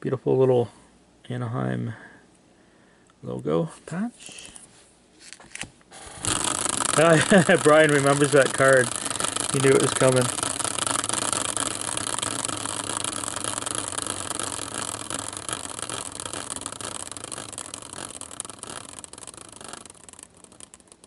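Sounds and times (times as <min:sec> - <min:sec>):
caster wheel clattering: 0:06.0 - 0:21.0.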